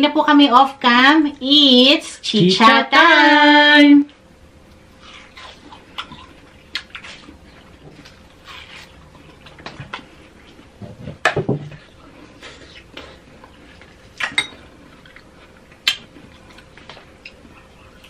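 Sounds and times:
watermelon bites and chewing: 4.8s - 10.7s, 12.4s - 18.0s.

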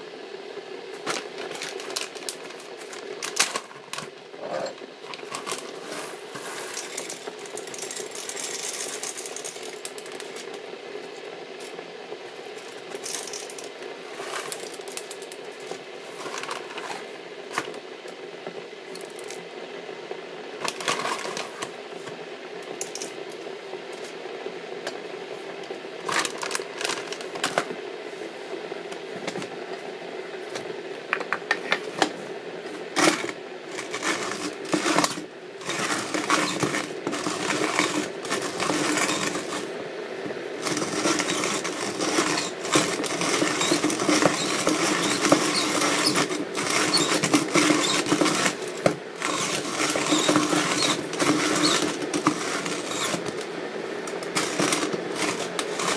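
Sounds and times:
steady background hum: 0.0s - 55.9s
coffee beans rattling into grinder: 1.0s - 10.6s, 12.5s - 17.8s, 18.9s - 19.4s, 20.6s - 21.8s, 22.7s - 23.4s, 26.0s - 27.7s, 32.9s - 39.8s, 40.6s - 53.5s, 54.1s - 55.9s.

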